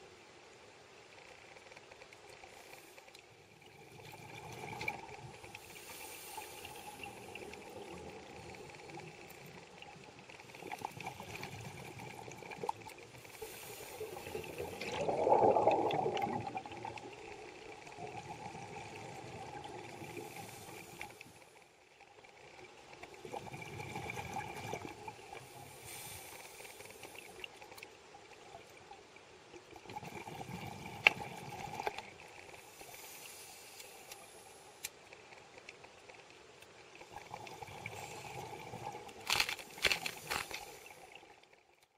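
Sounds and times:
water noise hissing: 0.0s - 41.6s
scuba regulator breathing underwater: 5.6s - 7.2s, 13.3s - 16.3s, 25.4s - 27.4s.

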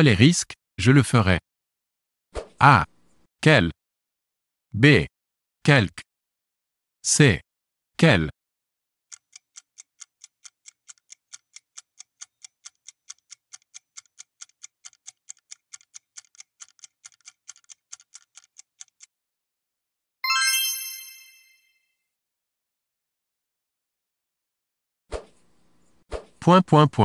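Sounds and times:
clock ticking: 9.1s - 19.1s
bright chime: 20.2s - 21.8s.

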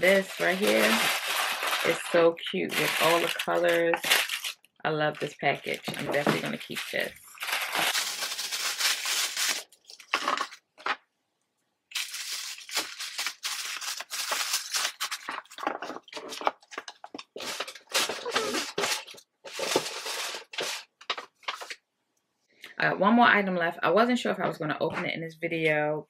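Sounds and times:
paper and cardboard crinkling: 0.0s - 4.6s, 5.2s - 11.0s, 11.9s - 21.8s.

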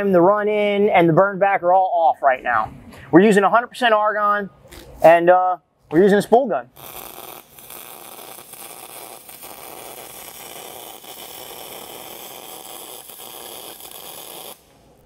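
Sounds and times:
welding arc hiss: 6.7s - 15.0s.

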